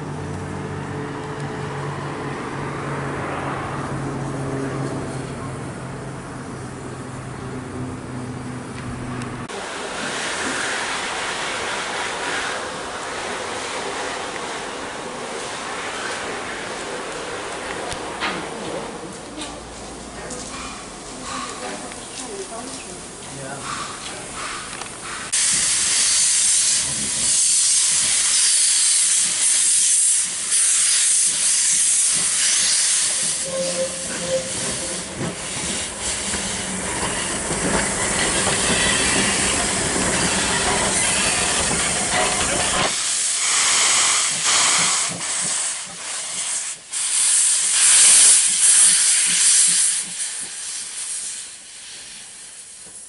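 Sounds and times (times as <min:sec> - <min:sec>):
steam hissing from locomotive: 0:09.5 - 0:17.6, 0:22.9 - 0:53.0.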